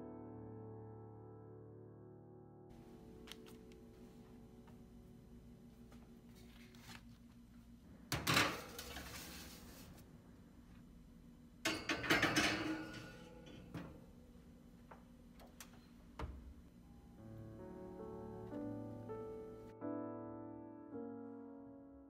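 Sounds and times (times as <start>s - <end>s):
bowl clattering on oven rack: 8.1s - 9.3s, 11.6s - 14.0s
metal tray scraping onto oven rack: 8.5s - 9.8s.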